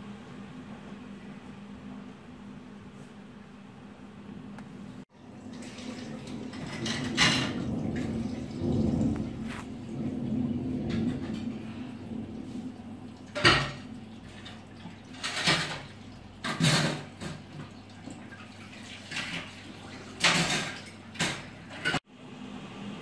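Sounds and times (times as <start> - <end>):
heavy rain: 6.3 - 15.3.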